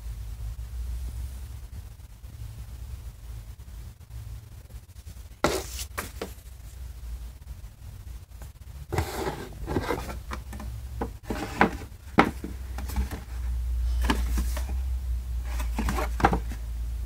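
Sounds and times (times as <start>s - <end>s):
cardboard scraping and rubbing: 5.4s - 6.5s, 8.9s - 14.8s, 15.4s - 16.6s.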